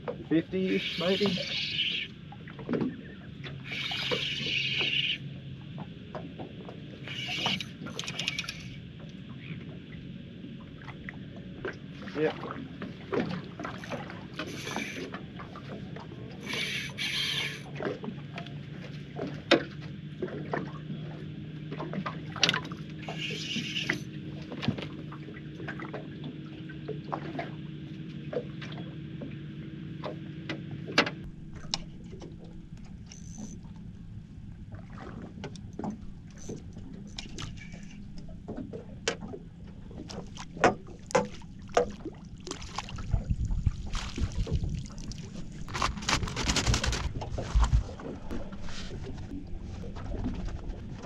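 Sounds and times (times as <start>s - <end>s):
steady low hum: 0.0s - 51.0s
fishing gear knocks and clicks: 7.2s - 8.7s, 45.6s - 47.9s.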